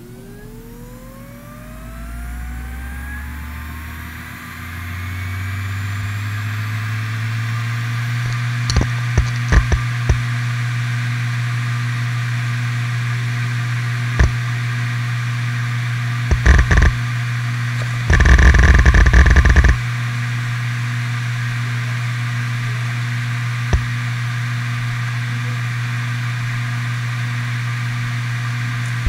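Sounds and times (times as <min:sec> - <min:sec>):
hard drive spindle hum: 0:00.0 - 0:29.0
hard drive seek clicks: 0:08.3 - 0:10.3, 0:14.2 - 0:14.4, 0:16.3 - 0:17.0, 0:17.8 - 0:19.8, 0:23.7 - 0:23.9.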